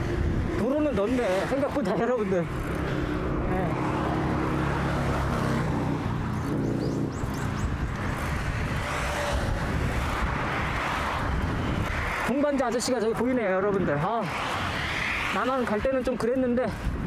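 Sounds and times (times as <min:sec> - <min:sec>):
vehicle engine hum: 0:00.0 - 0:12.2
road traffic passing: 0:00.0 - 0:17.0
wind rush on microphone: 0:00.0 - 0:17.0.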